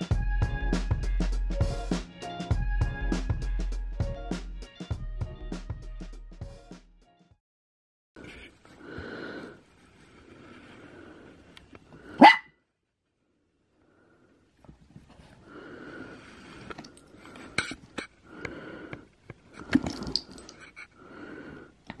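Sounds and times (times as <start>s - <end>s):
small dog barking: 12.1s - 12.5s.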